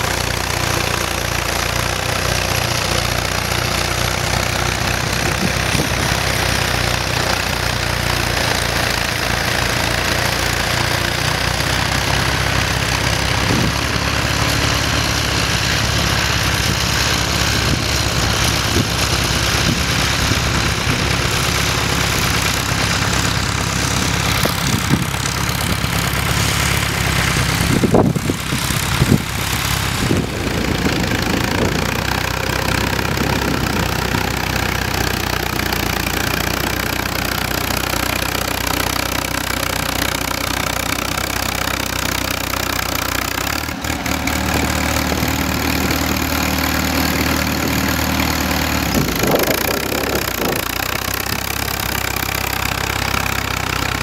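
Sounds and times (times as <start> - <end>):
tractor engine under load: 0.0 - 54.0.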